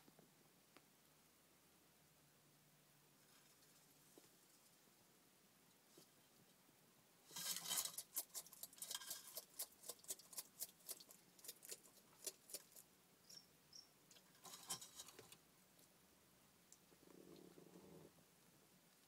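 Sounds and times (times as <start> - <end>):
lizard crunching an insect: 7.6 - 12.9.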